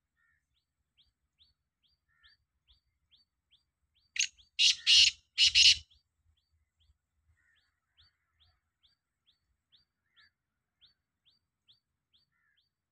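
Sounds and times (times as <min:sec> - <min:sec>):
bird calling loudly: 0:04.2 - 0:05.9.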